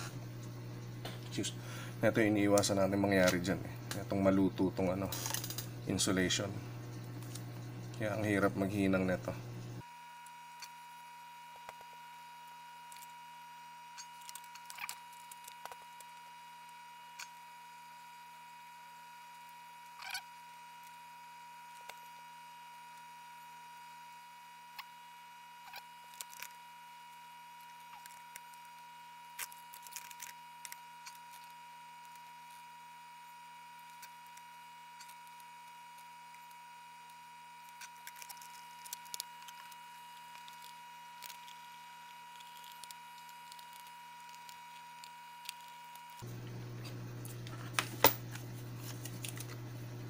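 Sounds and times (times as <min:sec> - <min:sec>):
electrical hum with whine: 0:00.0 - 0:50.0
low steady hum: 0:26.6 - 0:50.0
battery cells clicking: 0:33.7 - 0:46.2.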